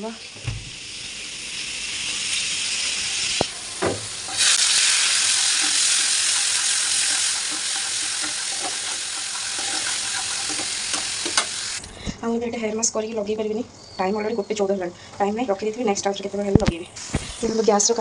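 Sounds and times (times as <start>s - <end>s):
food sizzling in hot oil: 0.0s - 11.9s.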